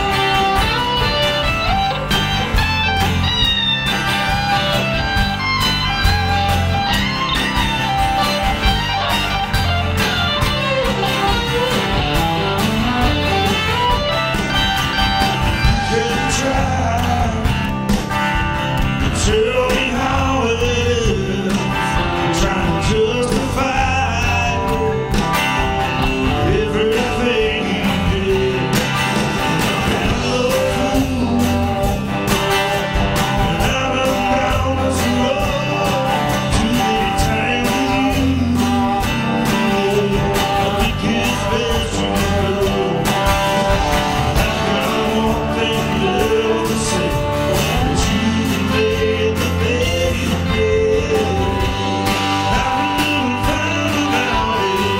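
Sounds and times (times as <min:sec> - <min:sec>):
live band playing: 0:00.0 - 0:54.9
man singing: 0:15.2 - 0:18.0, 0:18.8 - 0:54.9.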